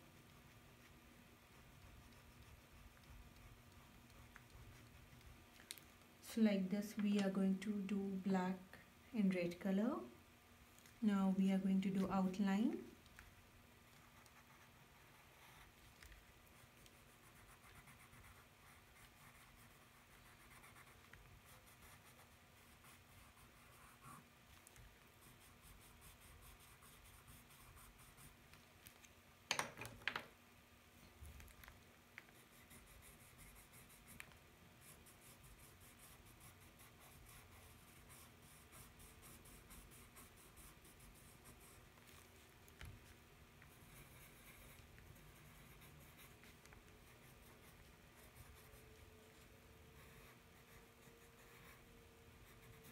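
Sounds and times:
pencil scratching on paper: 0.1 - 5.4, 13.9 - 15.9, 16.5 - 24.3, 25.2 - 28.4, 32.3 - 42.3, 43.7 - 52.9.

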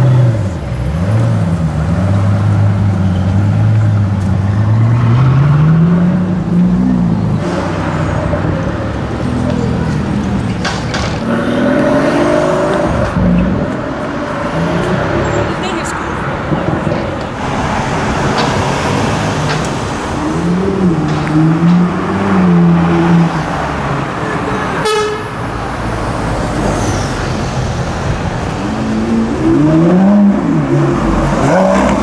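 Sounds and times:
sports car accelerating: 0.0 - 24.5, 28.0 - 32.0
city traffic noise: 0.0 - 32.0
sports car engine revving: 28.6 - 32.0.

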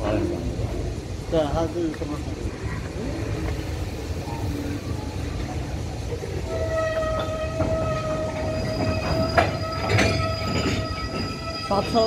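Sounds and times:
freight train rumble: 0.0 - 12.0
train clank: 5.4 - 12.0
wheel squeal: 6.4 - 12.0.

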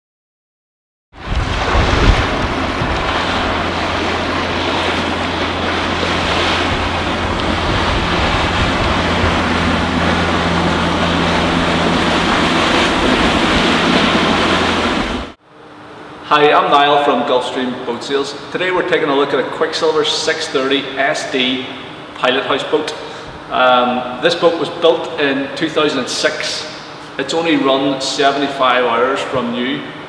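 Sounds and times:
wind buffeting microphone: 1.2 - 15.4
boat engine drone: 1.2 - 16.2.

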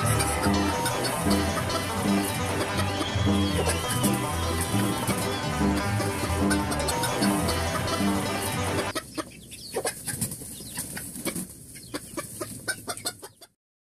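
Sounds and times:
banjo band music: 0.0 - 8.9
chickens clucking: 0.0 - 13.6.

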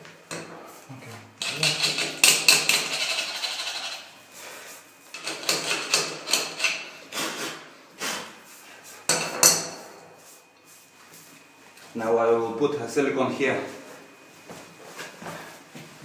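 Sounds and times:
wrench scraping metal: 1.4 - 4.1, 5.1 - 6.9.

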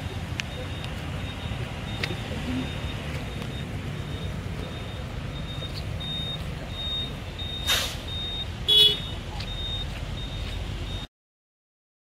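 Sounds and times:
low engine rumble: 0.0 - 11.1
repeating high beep: 0.0 - 11.1
short hiss: 7.6 - 8.1
car horn honk: 8.7 - 9.2.

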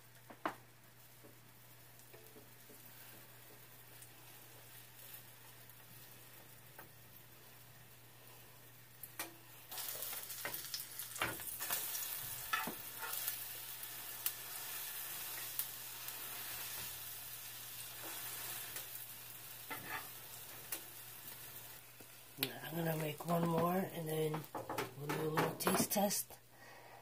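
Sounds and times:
batter sizzling in frying pan: 0.0 - 25.5
utensil tapping and scraping pan: 19.7 - 20.1, 23.5 - 26.0.

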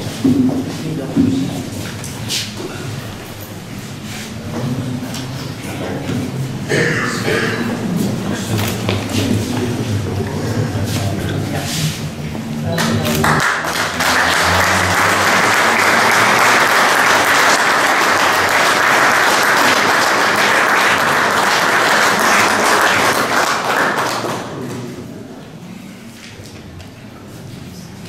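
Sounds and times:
audience applauding: 12.7 - 24.9.

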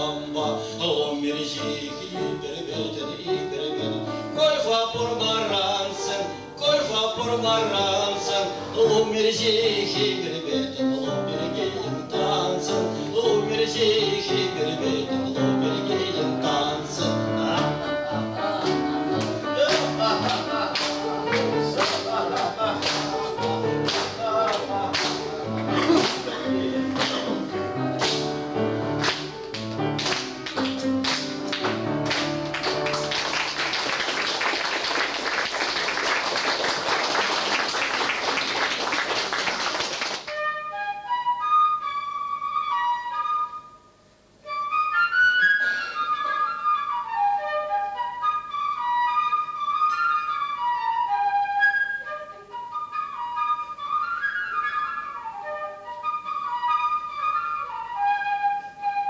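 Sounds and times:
flute melody: 7.2 - 34.4, 40.3 - 59.0
audience applause: 19.7 - 24.1, 24.9 - 27.4, 30.0 - 40.3.

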